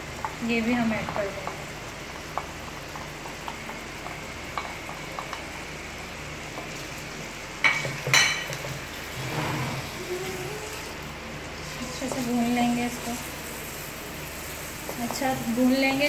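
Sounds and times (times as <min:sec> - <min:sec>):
chicken sizzling in hot oil: 0:00.0 - 0:16.0.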